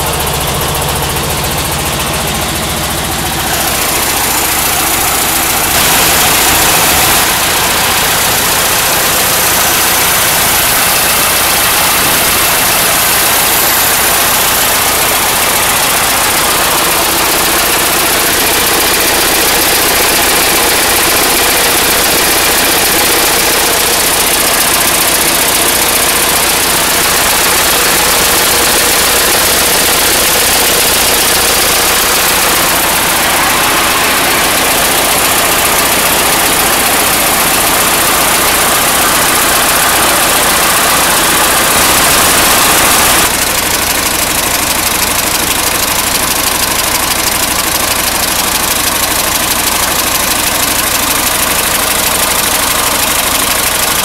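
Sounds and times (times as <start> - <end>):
engine idling: 0.0 - 54.0.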